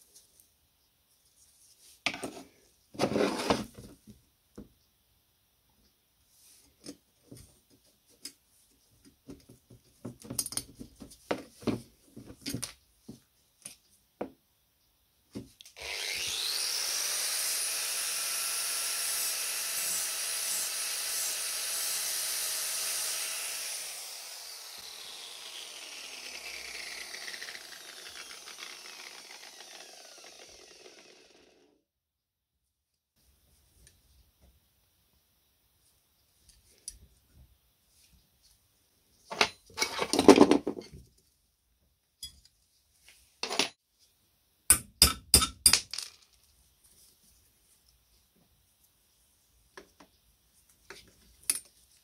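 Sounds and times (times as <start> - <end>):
angle grinder grinding metal: 15.8 - 31.7.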